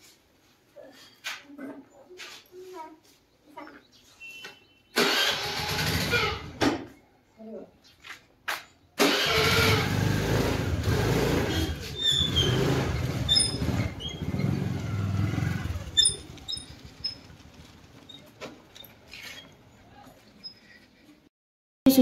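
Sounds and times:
scooter engine passing by: 5.0 - 6.6, 9.0 - 19.8.

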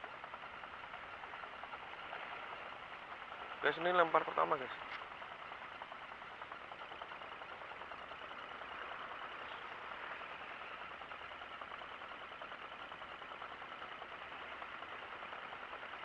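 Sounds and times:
fishing reel ticking whir: 5.8 - 16.0.

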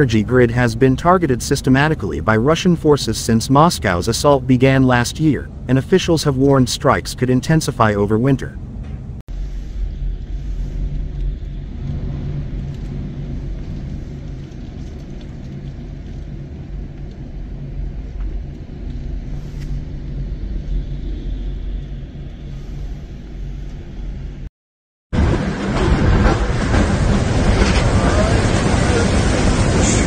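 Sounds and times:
gale-force wind: 8.4 - 24.5, 25.2 - 30.0
seawater washing across pavement: 10.5 - 17.4
waves breaking over seawall: 25.2 - 30.0.

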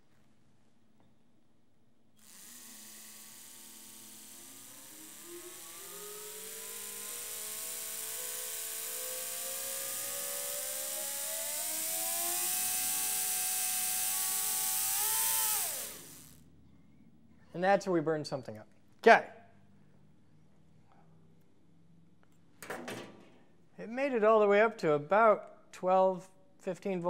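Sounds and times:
electric toothbrush motor whining: 2.2 - 16.4.

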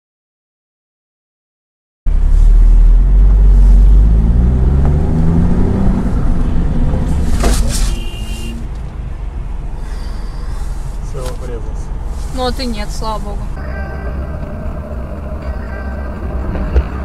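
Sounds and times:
car engine: 2.1 - 17.0
road rumble: 2.1 - 17.0
car crash: 6.9 - 8.3.

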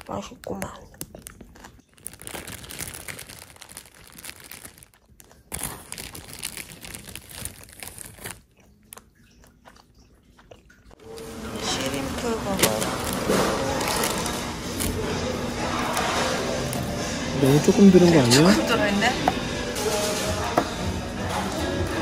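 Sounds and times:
plastic snack bag crinkling: 0.0 - 9.1, 11.1 - 17.1
crunching and chewing puffed rice: 0.0 - 11.0, 12.6 - 17.1.

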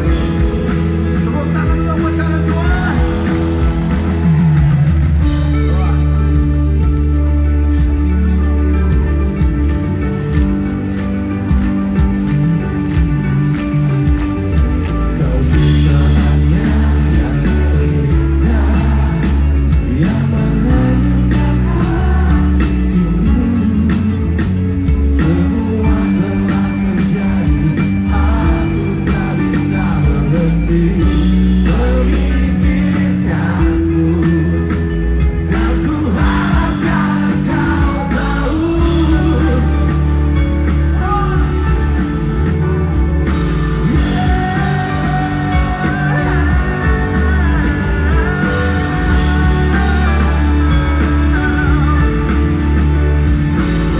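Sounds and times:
live rock band playing: 0.0 - 53.9
person singing: 15.0 - 53.9.

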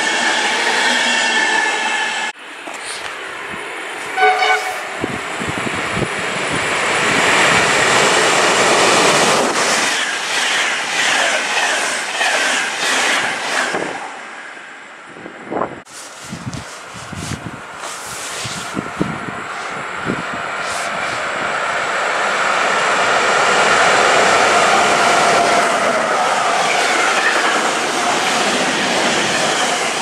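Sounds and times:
rush of train passing: 0.0 - 30.0
train horn blast: 4.1 - 5.0.

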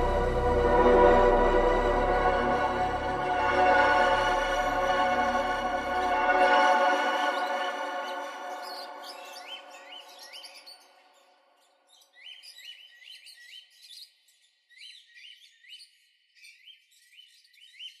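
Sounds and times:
sustained music chords: 0.0 - 9.4.

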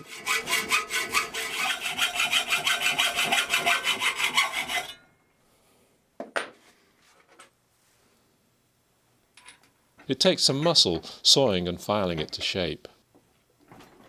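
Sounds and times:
hacksaw cutting steel: 0.0 - 5.1.

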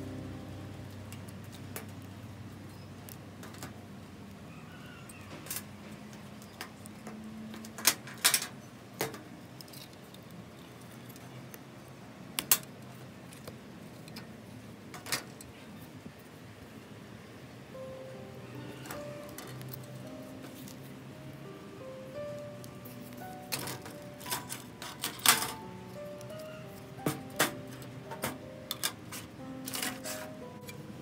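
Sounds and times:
faint steady hum: 0.0 - 4.8, 9.3 - 31.0
metal tools clicking: 27.4 - 30.8.

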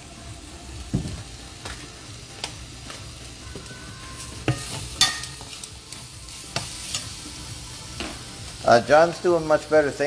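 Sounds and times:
light sizzle: 0.0 - 10.0
spoon clinking against pan: 4.4 - 5.6
metal spoon scraping a pan: 4.5 - 5.7.

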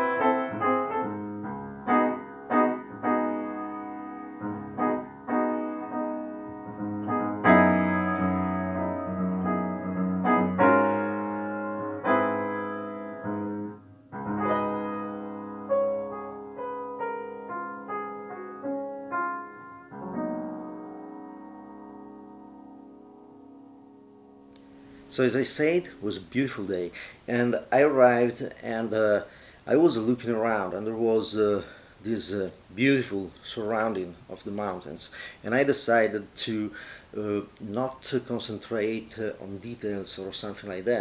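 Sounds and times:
piano music: 0.0 - 26.3.

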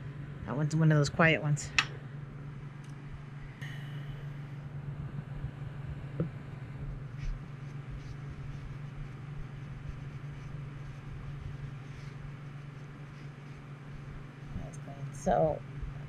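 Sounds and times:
swamp cooler humming: 2.0 - 16.0.

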